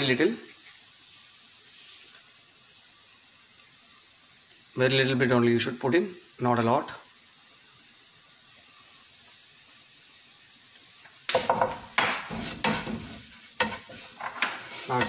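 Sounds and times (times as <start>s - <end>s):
frying sizzle: 0.0s - 15.0s
spatula scraping a pan: 11.4s - 15.0s.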